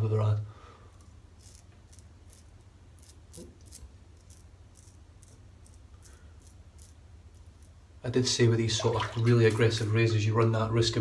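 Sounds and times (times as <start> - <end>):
razor scraping stubble: 0.9 - 7.8.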